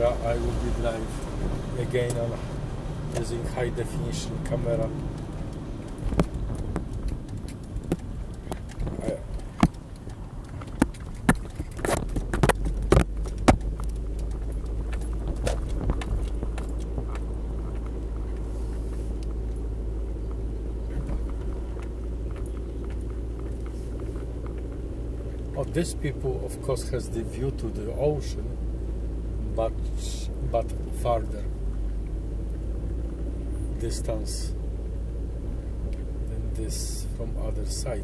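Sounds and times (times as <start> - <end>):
car engine and road rumble: 0.0 - 38.0.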